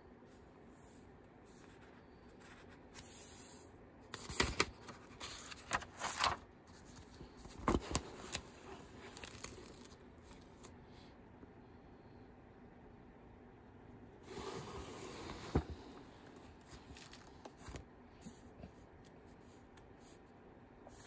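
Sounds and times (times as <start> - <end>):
paper page rustling: 4.1 - 10.7, 16.5 - 17.8.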